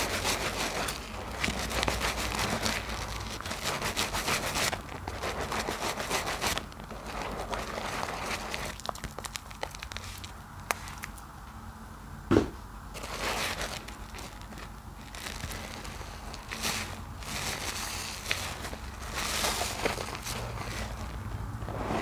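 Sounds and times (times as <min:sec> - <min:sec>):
sponges squelching in lather: 0:00.0 - 0:11.0
foam crackling: 0:00.0 - 0:11.1, 0:12.9 - 0:22.0.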